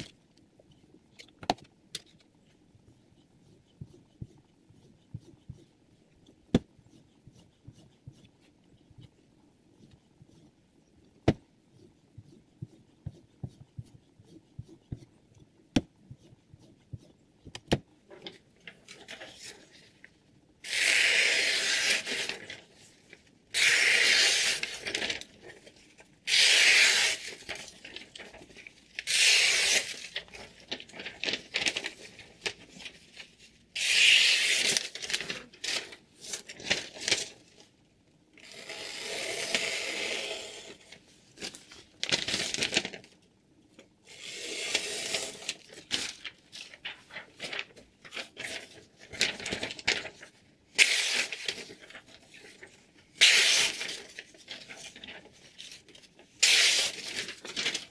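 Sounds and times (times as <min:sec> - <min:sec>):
knife slicing paper: 0:26.3 - 0:27.8, 0:29.0 - 0:30.2, 0:53.2 - 0:55.0, 0:56.4 - 0:57.9.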